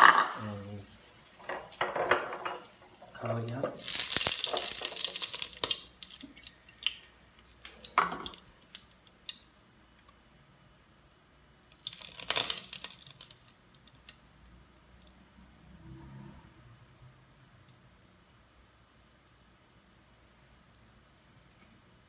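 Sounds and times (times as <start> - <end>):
hot oil spitting and crackling: 0.0 - 10.3, 11.6 - 15.6.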